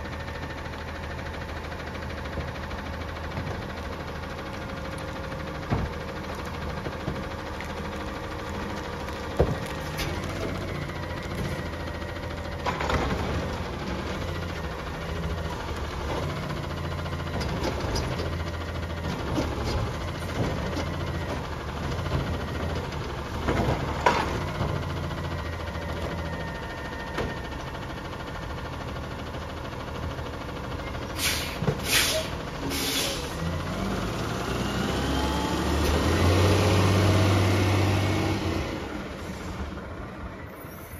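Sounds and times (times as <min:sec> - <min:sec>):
diesel engine running: 0:00.0 - 0:40.9
air hissing: 0:31.2 - 0:33.3.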